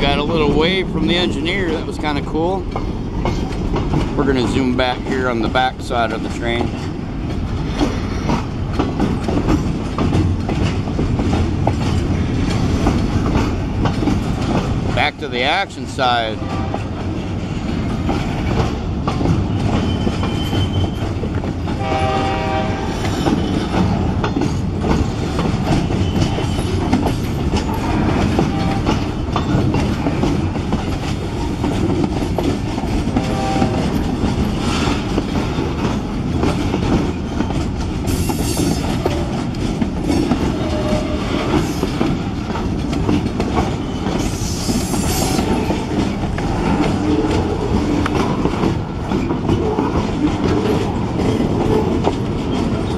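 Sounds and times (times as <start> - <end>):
freight train rumbling: 0.0 - 52.9
wheels clattering over rail joints: 0.0 - 52.9
tonal wheel squeals: 19.5 - 21.2.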